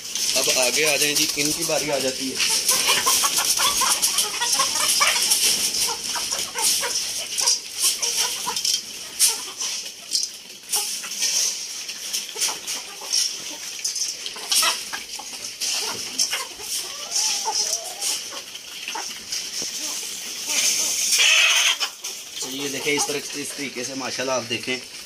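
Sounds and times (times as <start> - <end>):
chickens clucking: 0.0 - 25.0
pecking taps on grain and bowl: 18.9 - 19.8.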